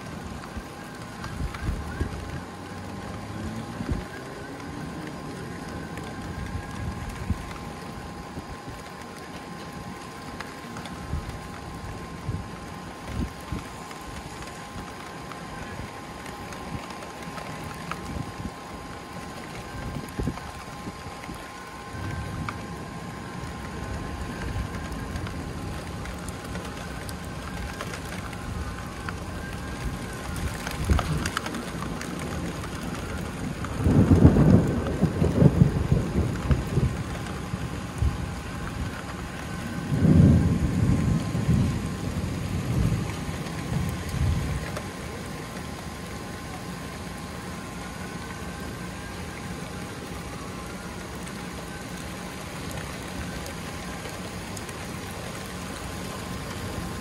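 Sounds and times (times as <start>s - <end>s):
steady rain: 0.0s - 57.0s
thunder rolling: 19.5s - 45.1s.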